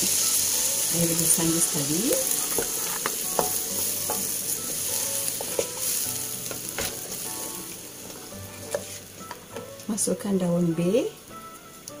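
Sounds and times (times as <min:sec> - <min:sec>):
pan sizzling: 0:00.0 - 0:12.0
spatula stirring in wok: 0:00.1 - 0:09.7
spatula knocking on pan: 0:02.5 - 0:07.1.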